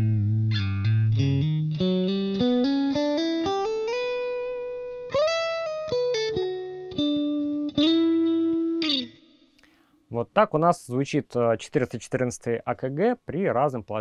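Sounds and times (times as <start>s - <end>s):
electric guitar melody: 0.0s - 9.5s.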